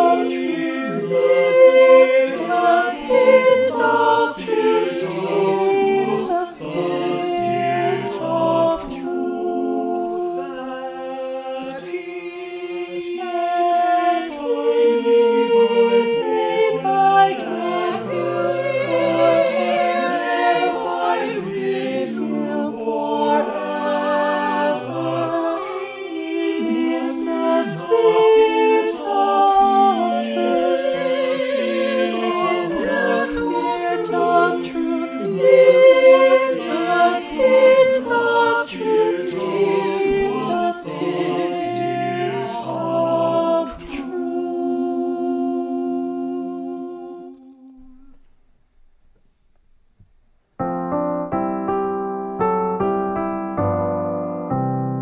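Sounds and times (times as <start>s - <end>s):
choir singing in harmony: 0.0s - 48.2s.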